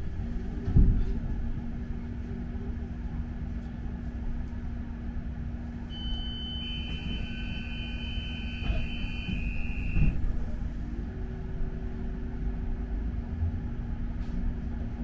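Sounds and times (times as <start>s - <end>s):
bus engine rumbling: 0.0s - 15.0s
high steady tone: 5.9s - 10.1s.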